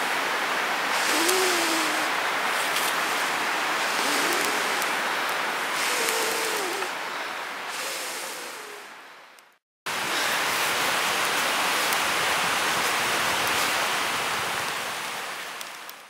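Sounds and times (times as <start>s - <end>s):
campfire hissing and crackling: 0.0s - 16.0s.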